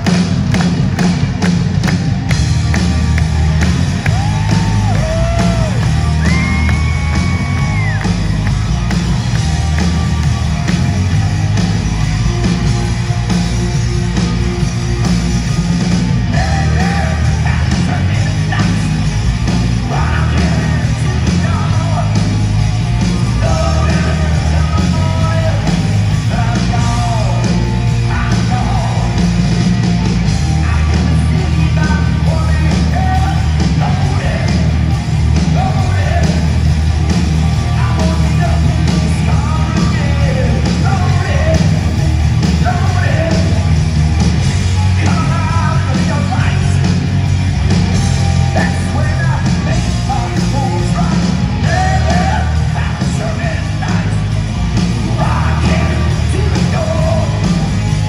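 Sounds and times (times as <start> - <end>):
heavy metal band playing live: 0.0 - 58.0
man singing high shouted vocals: 48.5 - 54.2, 55.1 - 57.4.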